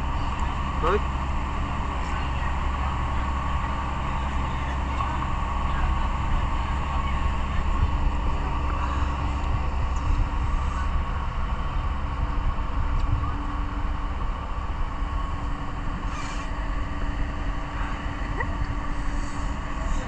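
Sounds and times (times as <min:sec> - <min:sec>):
low mechanical drone: 0:00.0 - 0:20.0.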